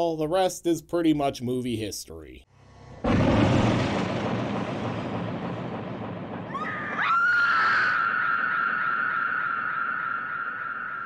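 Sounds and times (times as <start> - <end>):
woman screaming: 6.6 - 11.0.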